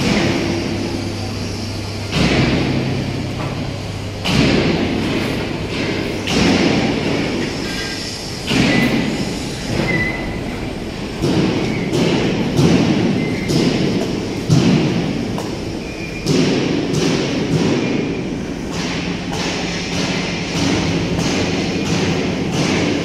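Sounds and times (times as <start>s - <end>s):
rumbling echo in a hall: 0.0s - 23.0s
heavy bangs on steel: 2.0s - 7.6s, 11.1s - 23.0s.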